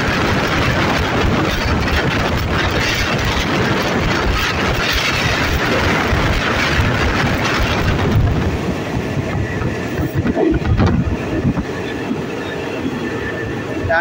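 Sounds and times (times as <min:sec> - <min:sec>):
train running rumble: 0:00.0 - 0:14.0.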